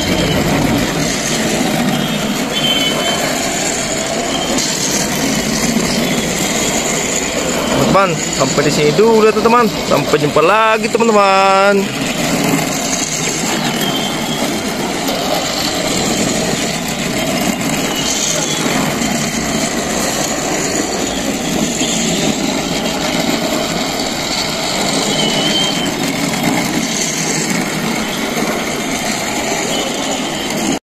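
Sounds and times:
toy train motor whirring: 0.0 - 30.8.

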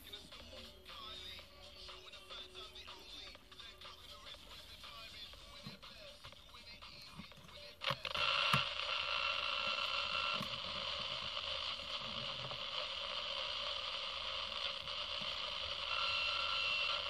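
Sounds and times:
radio static hiss: 0.0 - 17.0
radio click: 5.2 - 17.0.

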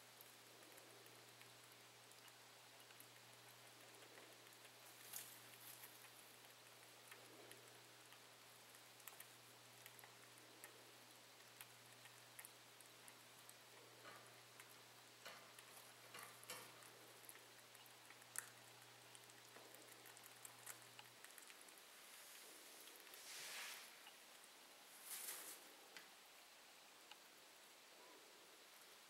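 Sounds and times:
faint low hum: 0.0 - 29.0
rabbits licking and nibbling: 0.0 - 29.0.

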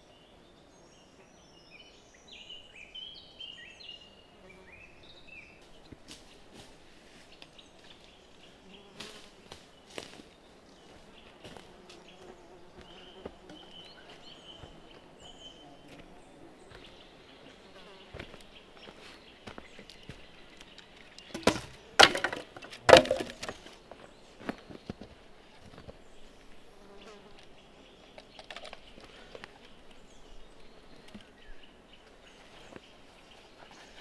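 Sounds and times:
insects buzzing: 2.3 - 34.0
loud knocks: 21.4 - 23.6.

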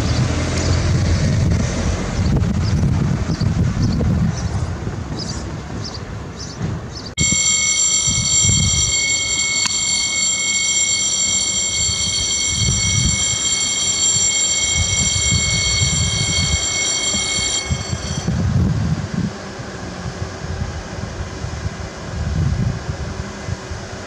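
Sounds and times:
level-crossing warning bell ringing: 7.2 - 18.7.

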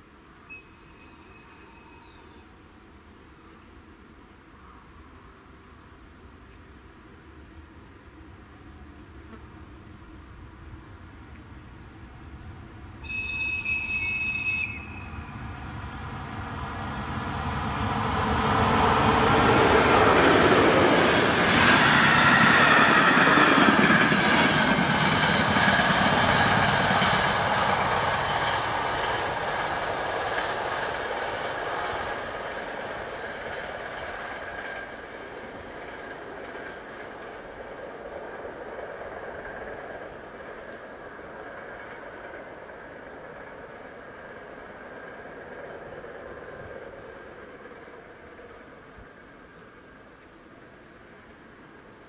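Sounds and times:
train rumble: 5.8 - 52.0
train horn blast: 13.0 - 15.5.

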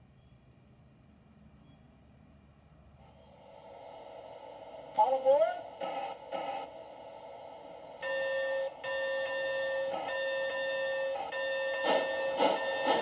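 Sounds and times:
steam locomotive whistle blasts: 8.0 - 13.0.

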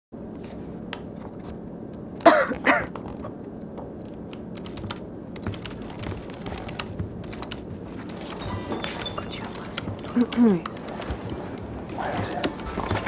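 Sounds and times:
low room hum: 0.2 - 13.0
person clearing throat: 2.3 - 3.0
keyboard typing: 4.0 - 13.0.

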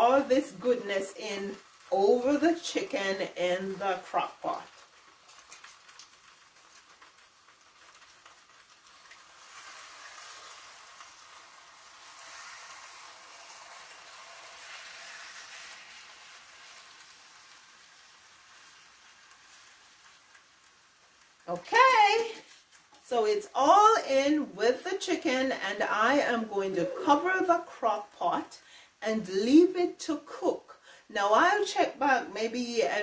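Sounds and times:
sauce pouring hiss: 4.6 - 21.5.

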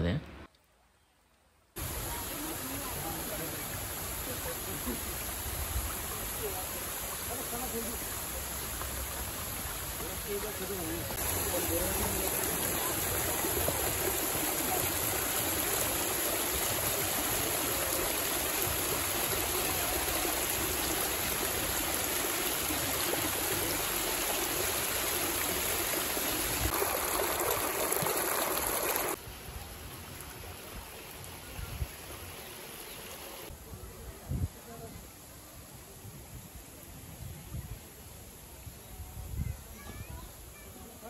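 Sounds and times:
waterfall rushing: 1.8 - 33.5.

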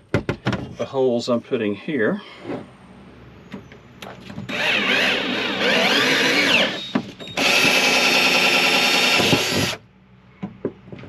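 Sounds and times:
cordless drill drilling metal: 4.5 - 9.8.

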